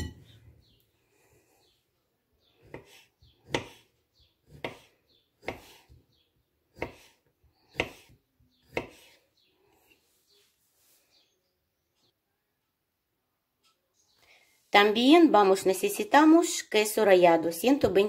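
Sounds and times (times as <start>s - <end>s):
knife chopping on wooden board: 2.6s - 6.0s, 6.7s - 9.2s.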